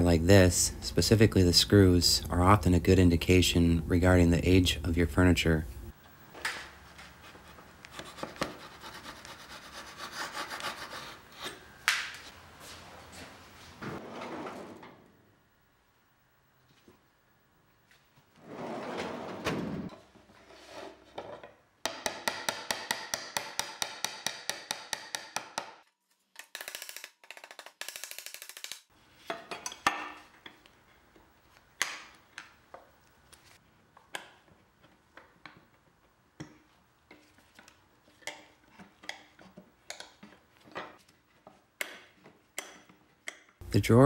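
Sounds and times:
tools tapping and knocking: 21.2 - 25.8, 29.2 - 30.7, 34.0 - 43.6.

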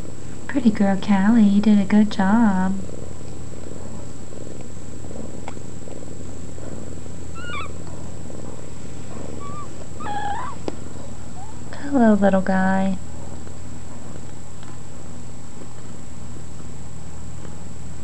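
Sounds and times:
cat purring: 2.0 - 12.4
kittens squeaking: 7.3 - 7.8, 9.2 - 10.7, 11.3 - 11.6.

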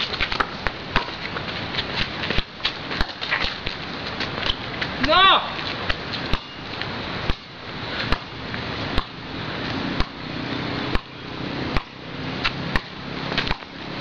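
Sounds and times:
rushing background noise: 0.0 - 14.0
basketball bouncing on court: 0.2 - 1.2.

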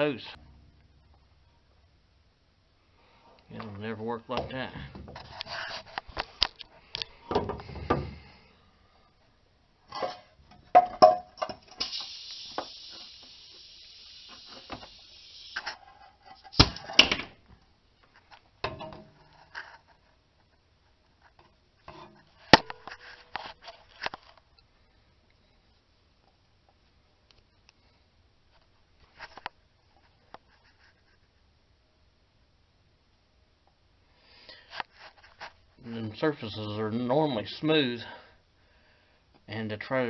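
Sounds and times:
scraping hiss: 11.6 - 16.6.

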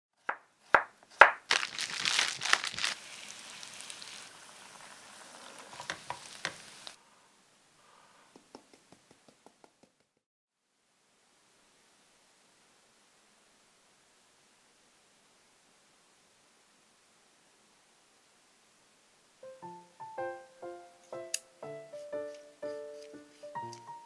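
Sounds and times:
potato slices frying in oil: 0.6 - 7.0.

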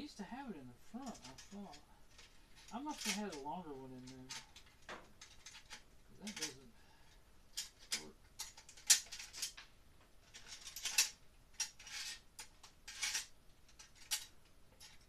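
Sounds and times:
metal tools clinking in plastic case: 1.0 - 6.7, 7.5 - 9.6, 10.2 - 15.0.

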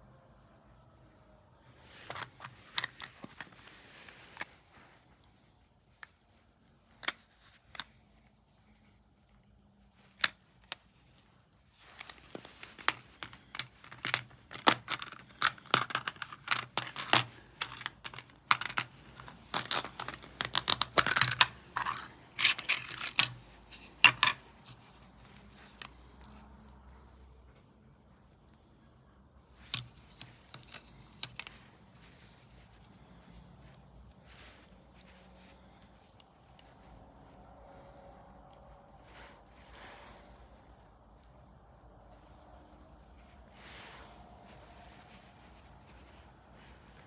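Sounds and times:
plastic case clicking: 12.9 - 23.4.

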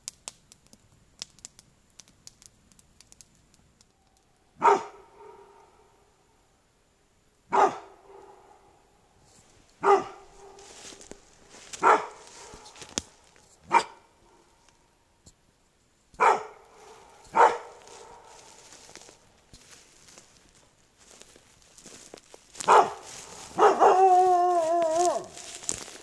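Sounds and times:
dog barking: 4.6 - 5.9, 7.5 - 8.8, 9.8 - 11.0, 11.8 - 12.8, 13.7 - 14.5, 16.2 - 18.6, 22.6 - 25.6.

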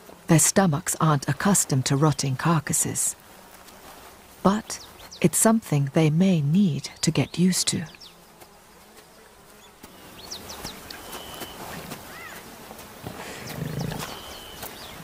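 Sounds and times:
insects buzzing: 0.0 - 15.0
lions growling: 13.1 - 14.5.

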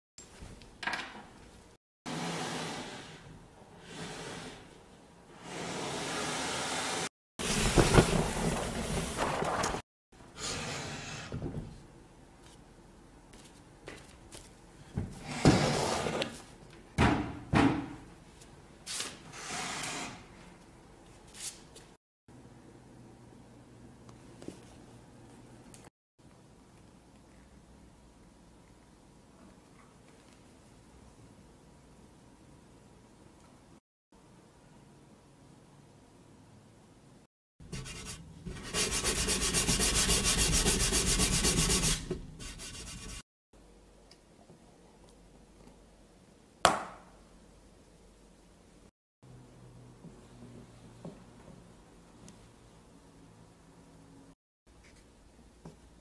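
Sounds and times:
wooden furniture scraping: 15.0 - 16.4
sandpaper rubbing on wood: 37.7 - 43.2.

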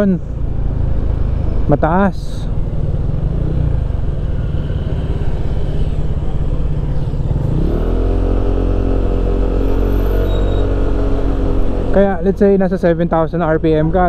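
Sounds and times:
motorcycle engine running: 0.7 - 10.0.

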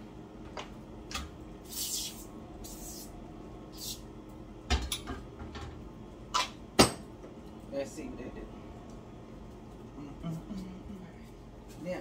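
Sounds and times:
aerosol can spraying: 1.7 - 3.1.

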